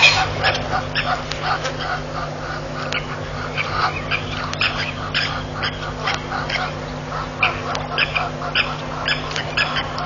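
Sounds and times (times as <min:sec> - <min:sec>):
birds calling: 0:00.0 - 0:10.0
low electrical hum: 0:00.0 - 0:10.0.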